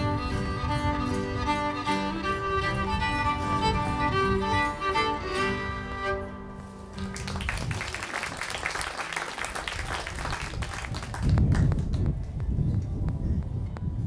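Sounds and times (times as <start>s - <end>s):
fiddle and guitar notes: 0.0s - 7.2s
audience applauding: 7.0s - 12.0s.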